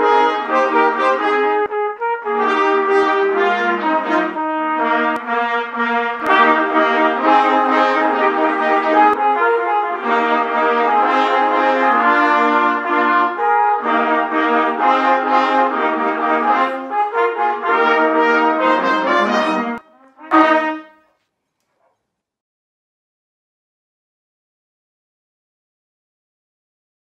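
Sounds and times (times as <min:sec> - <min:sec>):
brass ensemble playing chords: 0:00.0 - 0:21.1.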